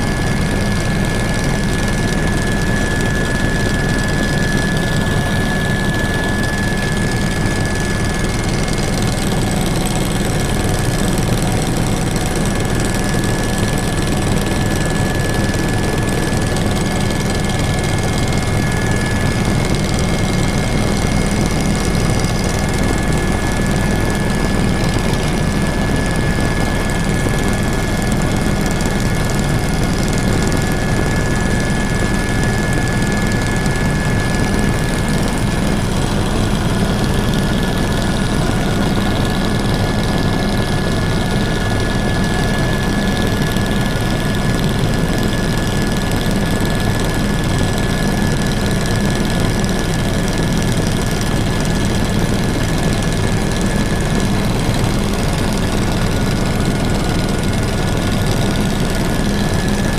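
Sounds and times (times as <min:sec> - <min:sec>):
high-pitched whine: 0:00.0 - 0:45.4
helicopter engine and rotor noise: 0:00.0 - 0:59.9.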